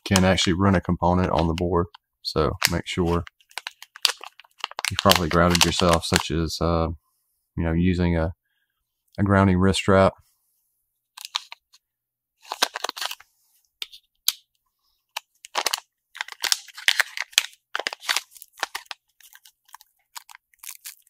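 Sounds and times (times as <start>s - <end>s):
plastic bags crinkling: 2.6s - 6.2s, 12.4s - 13.2s, 15.1s - 21.0s.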